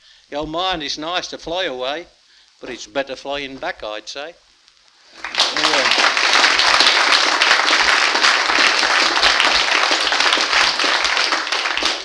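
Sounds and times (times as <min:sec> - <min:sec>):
audience applauding: 0:05.1 - 0:12.0.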